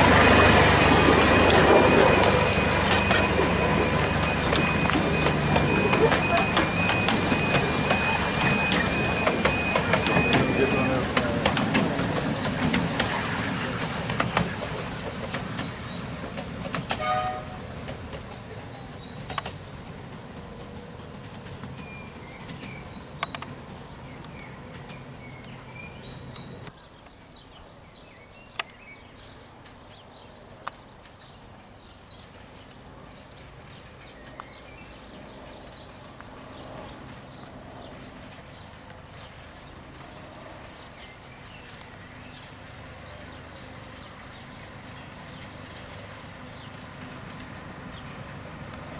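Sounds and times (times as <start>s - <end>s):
miniature train rumble: 0.0s - 28.1s, 29.0s - 48.9s
birds chirping: 0.0s - 48.9s.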